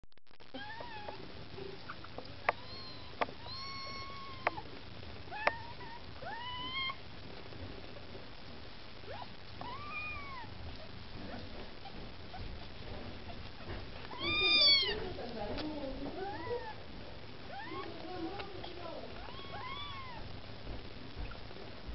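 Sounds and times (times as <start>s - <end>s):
kittens mewing: 1.8s - 4.7s, 9.1s - 15.1s, 17.4s - 20.3s.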